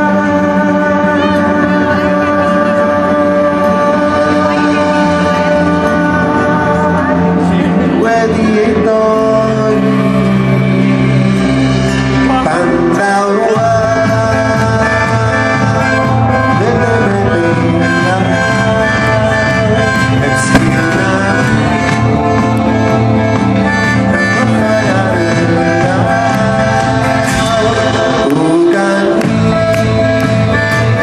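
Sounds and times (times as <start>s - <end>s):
person singing: 0.0s - 11.3s, 12.3s - 22.8s
drums: 0.0s - 31.0s
keyboards: 0.0s - 31.0s.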